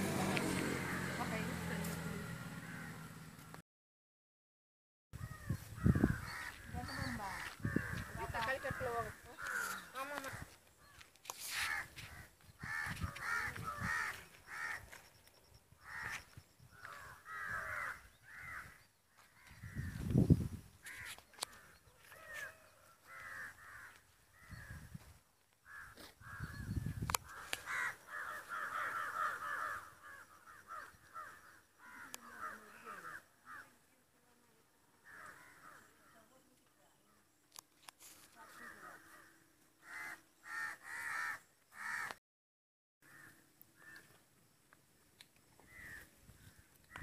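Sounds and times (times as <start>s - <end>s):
crows cawing: 0.2s - 1.6s, 2.3s - 3.3s, 5.2s - 15.2s, 15.8s - 20.0s, 20.8s - 24.9s, 25.6s - 33.9s, 35.0s - 36.3s, 38.4s - 42.2s, 43.0s - 44.2s, 45.6s - 47.0s.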